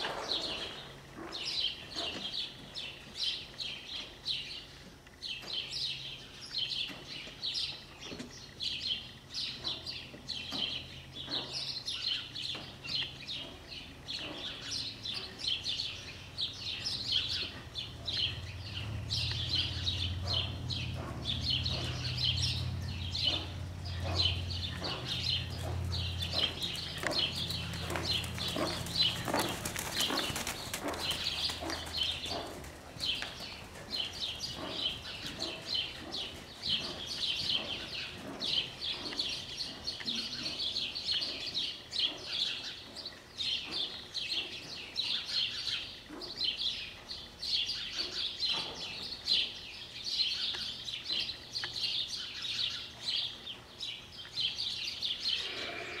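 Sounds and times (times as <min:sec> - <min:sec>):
birds chirping rapidly: 0:00.0 - 0:56.0
horse hoofbeats on sand: 0:16.8 - 0:42.3.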